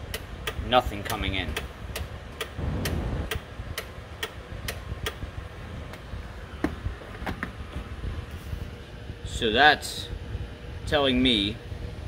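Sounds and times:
steady sharp ticking clicks: 0.0 - 5.2
short low rumble: 2.6 - 3.3.

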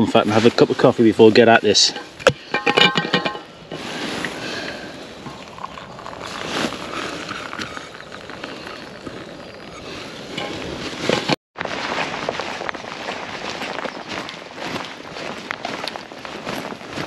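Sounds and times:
coffee pouring into steel cup: 5.3 - 6.4.

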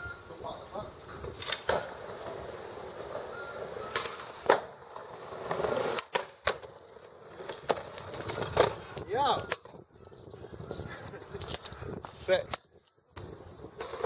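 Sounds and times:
skateboard wheels rolling on pavement: 0.0 - 12.3, 13.2 - 14.0
skateboard clacking on ground: 1.1 - 9.8.

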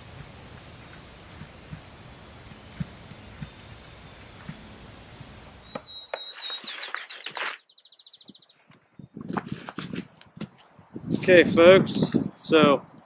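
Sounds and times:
songbirds chirping: 0.5 - 9.2, 11.6 - 13.0
bird song with fast trill: 3.1 - 9.2.

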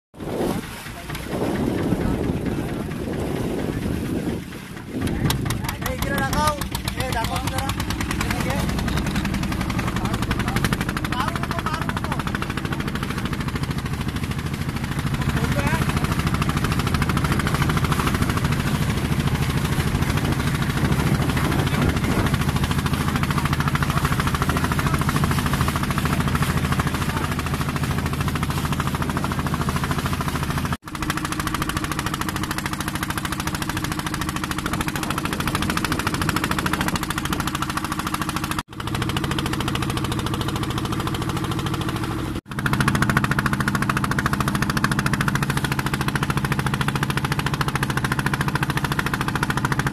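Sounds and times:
boat engine running: 0.1 - 49.9.

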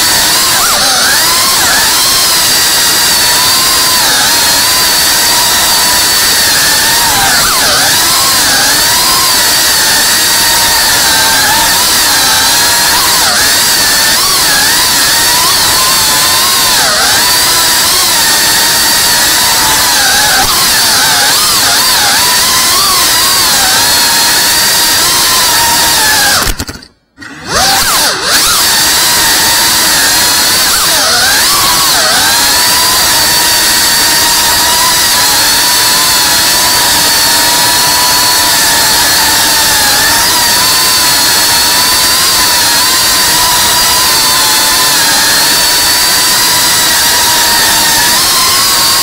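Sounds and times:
drone motors whining: 0.0 - 49.0.

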